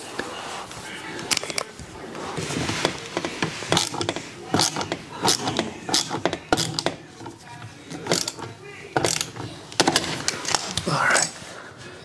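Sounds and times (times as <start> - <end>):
screwdriver clicking and scraping metal: 2.7 - 11.3.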